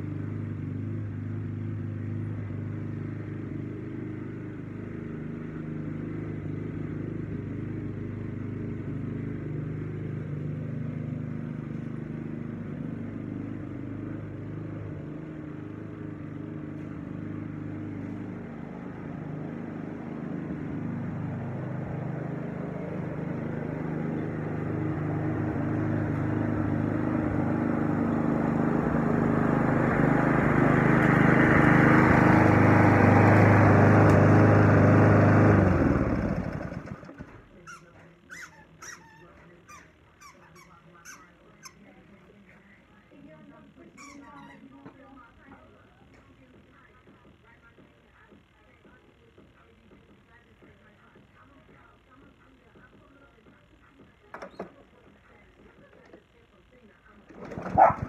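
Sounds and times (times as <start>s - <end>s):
lawn mower engine running: 0.0s - 37.6s, 57.2s - 58.0s.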